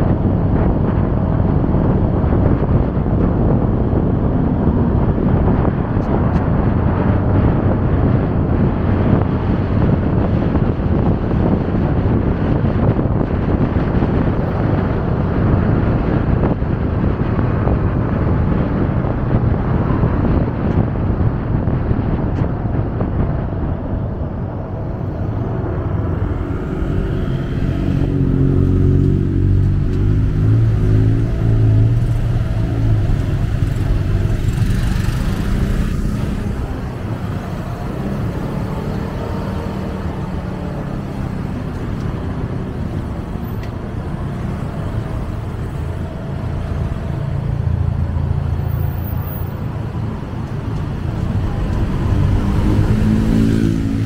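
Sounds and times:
surrounding traffic noise: 0:00.0 - 0:54.0
motorcycle engine revving: 0:25.6 - 0:46.9, 0:51.0 - 0:54.0.

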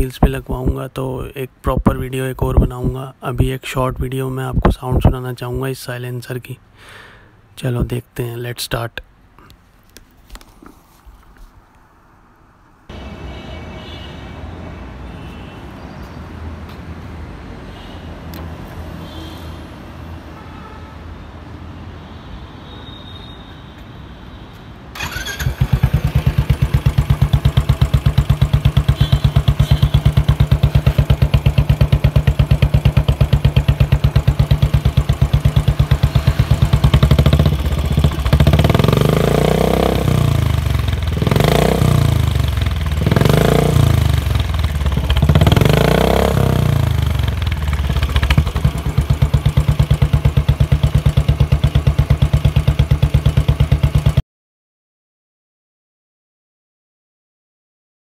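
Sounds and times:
motorcycle engine revving: 0:25.0 - 0:54.2
motorcycle engine starting and idling: 0:25.0 - 0:54.2.

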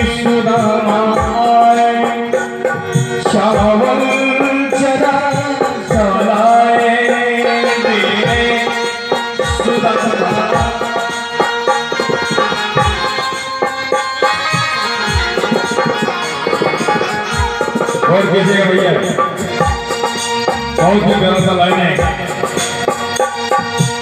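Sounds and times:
hand drum rhythm: 0:00.0 - 0:24.0
harmonium and keyboard melody: 0:00.0 - 0:24.0.

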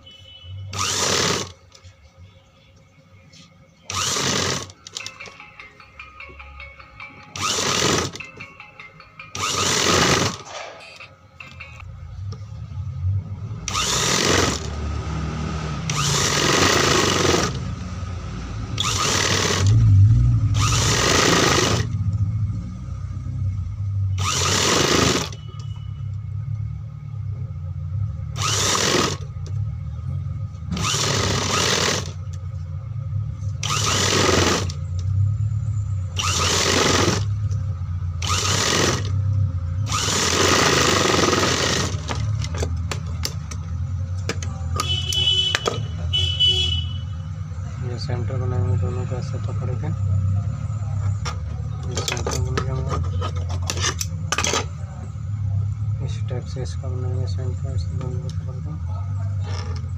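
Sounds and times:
sewing machine stitching: 0:00.7 - 0:01.6, 0:03.9 - 0:05.1, 0:07.4 - 0:08.2, 0:09.4 - 0:11.0, 0:13.7 - 0:14.8, 0:15.9 - 0:17.6, 0:18.8 - 0:19.8, 0:20.6 - 0:21.9, 0:24.2 - 0:25.4, 0:28.4 - 0:29.3, 0:30.7 - 0:32.2, 0:33.6 - 0:34.8, 0:36.2 - 0:37.3, 0:38.2 - 0:39.2, 0:39.9 - 0:42.2
sewing machine motor humming: 0:00.7 - 0:01.7, 0:03.9 - 0:05.1, 0:07.4 - 0:08.3, 0:09.3 - 0:11.0, 0:13.7 - 0:14.8, 0:15.9 - 0:17.7, 0:18.8 - 0:19.8, 0:20.6 - 0:22.0, 0:24.2 - 0:25.4, 0:28.4 - 0:29.3, 0:30.8 - 0:32.2, 0:33.6 - 0:34.8, 0:36.2 - 0:37.4, 0:38.2 - 0:39.2, 0:39.9 - 0:42.3.

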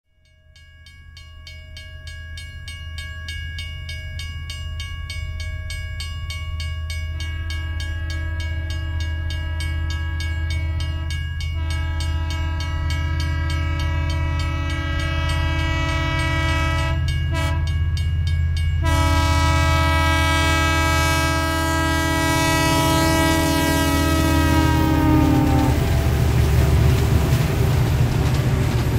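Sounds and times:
train rumble: 0:04.2 - 0:28.9
train air horn blasts: 0:08.0 - 0:17.7, 0:18.8 - 0:26.3.

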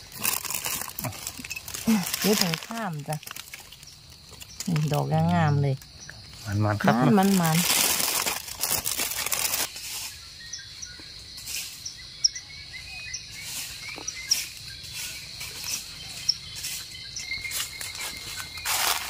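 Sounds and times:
footsteps crackling in dry leaves: 0:00.0 - 0:05.1, 0:06.4 - 0:10.4, 0:13.3 - 0:19.0
plastic bag rustling: 0:00.0 - 0:05.1, 0:06.9 - 0:09.8, 0:17.6 - 0:19.0
high insect drone: 0:00.0 - 0:19.0
small birds chirping: 0:00.0 - 0:19.0.

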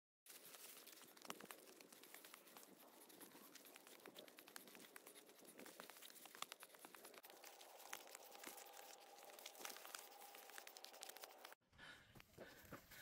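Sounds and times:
footsteps crunching on path: 0:05.3 - 0:11.6.

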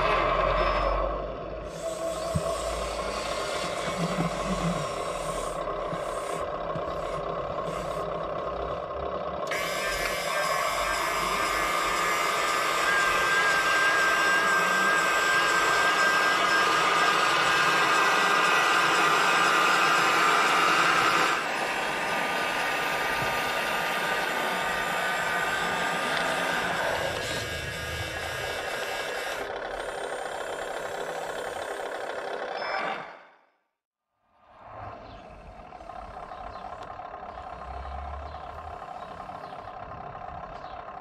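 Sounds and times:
electric motor and pump whine: 0:00.0 - 0:08.1, 0:09.4 - 0:33.2.

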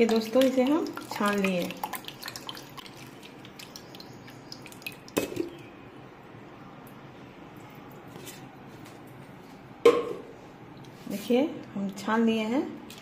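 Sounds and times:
juice dripping through sieve: 0:00.0 - 0:05.7.

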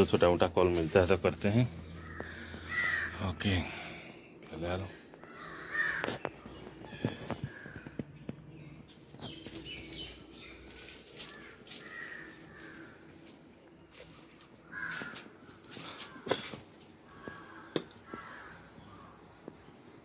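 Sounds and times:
short bird calls: 0:01.9 - 0:04.3.

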